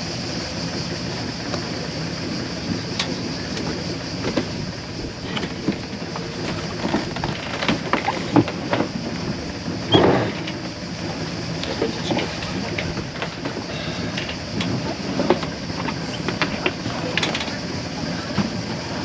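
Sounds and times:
engine-like drone: 0.0 - 19.0
hiss: 9.8 - 19.0.

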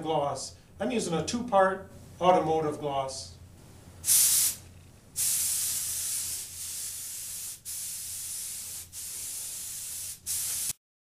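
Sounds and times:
spray gun hissing: 4.0 - 4.6, 5.2 - 10.8.

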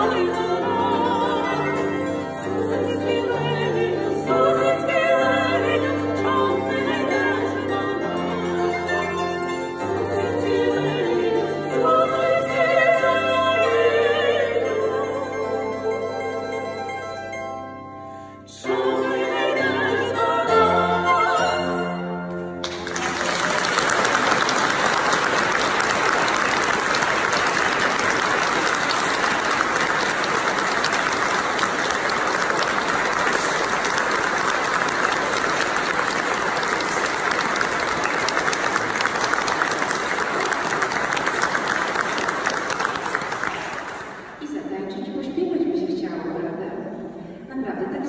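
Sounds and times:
women's voices singing held chord: 0.0 - 16.5, 18.5 - 22.0
audience applauding: 22.6 - 44.4.

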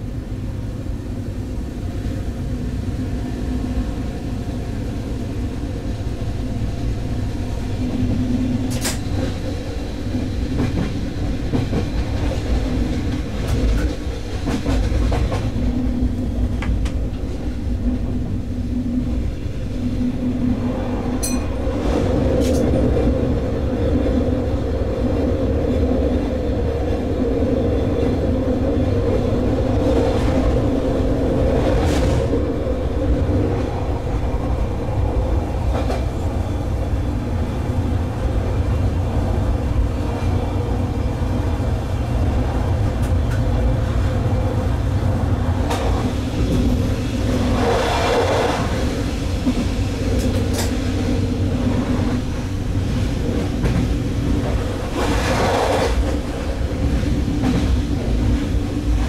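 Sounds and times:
track noise rushes: 0.0 - 59.0
train wheels rumbling on rail: 0.0 - 59.0.

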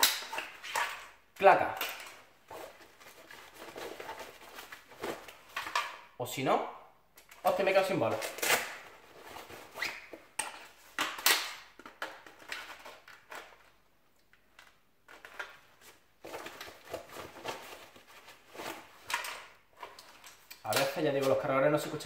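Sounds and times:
vest pouches rustling: 0.0 - 5.8.

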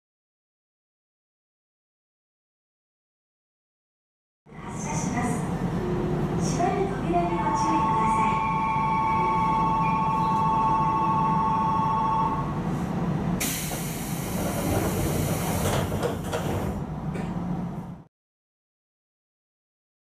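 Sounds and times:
hiss of air: 13.4 - 15.9
sliding doors knocking: 14.4 - 17.3.

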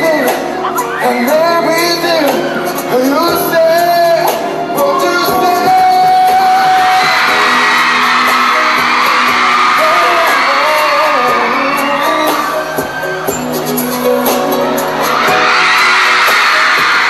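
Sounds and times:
man singing into microphone: 0.0 - 7.5, 9.7 - 13.0
audience screaming and whooping: 0.0 - 17.0
backing track music: 0.0 - 17.0.

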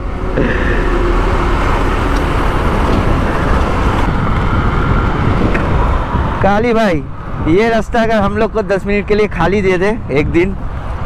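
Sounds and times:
passing vehicles: 0.0 - 11.0
road noise: 0.0 - 11.0
wind rush: 0.0 - 11.0.

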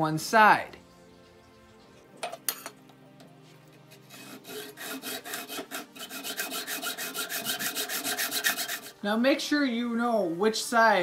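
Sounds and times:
hacksaw rasping through metal: 3.8 - 9.0.

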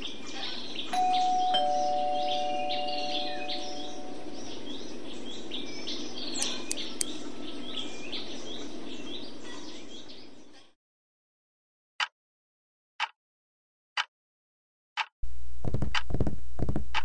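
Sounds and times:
outdoor background hiss: 0.0 - 10.6
birds chirping: 0.0 - 10.8
two-tone doorbell chime: 0.9 - 4.4.

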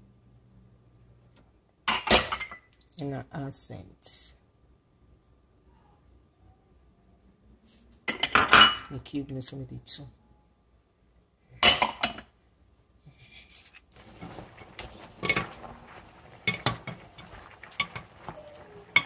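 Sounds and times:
wooden spoon scraping metal pot: 14.0 - 19.0.

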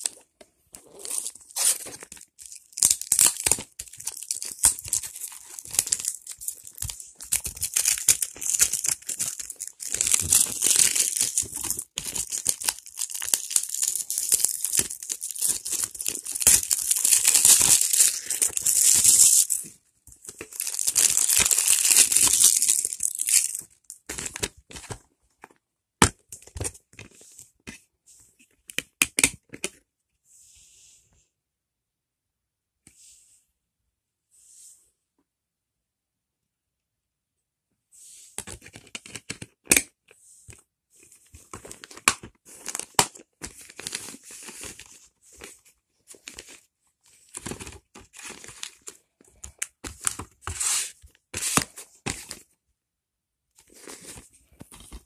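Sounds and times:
plastic wrapping tearing and crinkling: 0.9 - 19.6, 20.3 - 24.5.

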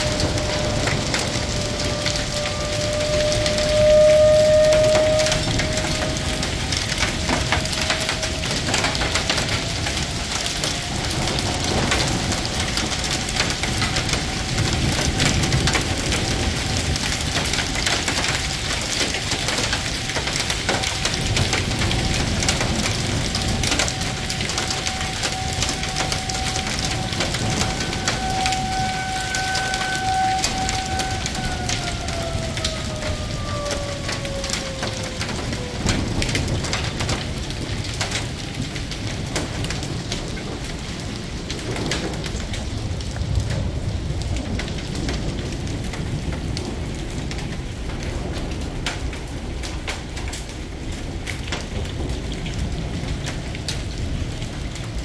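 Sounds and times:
steady high tone: 0.0 - 14.9, 21.9 - 36.1
hail on pavement and cars: 0.0 - 55.0.

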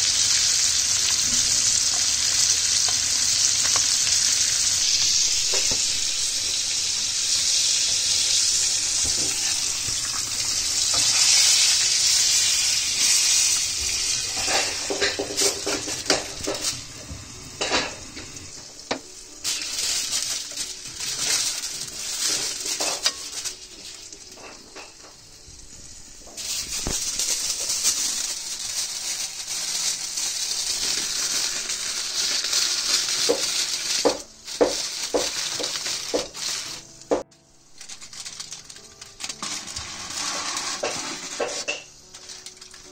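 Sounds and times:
steak sizzling in oil: 0.0 - 42.9
utensils knocking against pan: 14.3 - 16.7, 40.8 - 42.0.

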